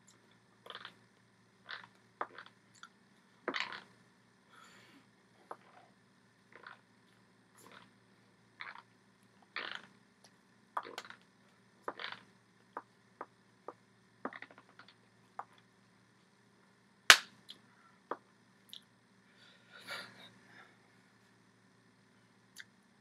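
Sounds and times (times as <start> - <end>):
hand clap smack: 17.1 - 17.3
hands clicking and slapping: 17.1 - 17.3.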